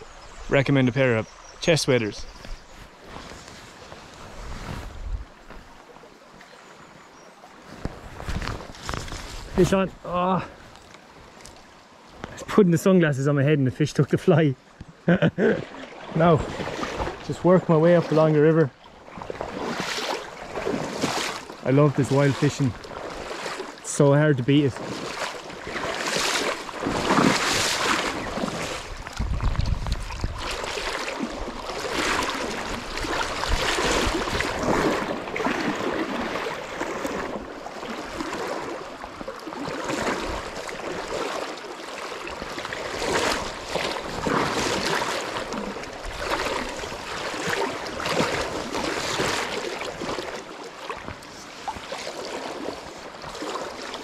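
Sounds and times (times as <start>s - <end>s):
sloshing splashes from wading: 15.4s - 54.0s
river water rushing over stones: 15.6s - 54.0s
wind buffeting microphone: 26.8s - 35.4s.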